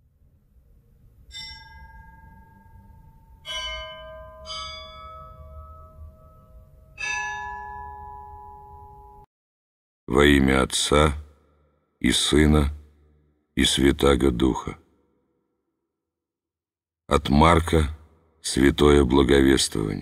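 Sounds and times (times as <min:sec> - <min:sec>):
bells ringing: 0:01.3 - 0:09.3.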